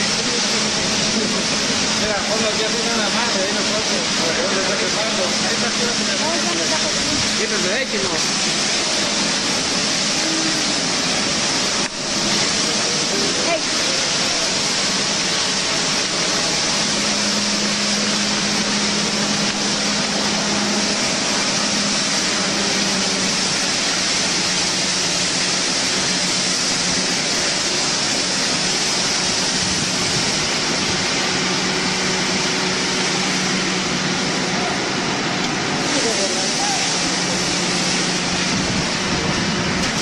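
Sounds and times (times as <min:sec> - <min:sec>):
fire hoses spraying: 0:00.0 - 0:40.0.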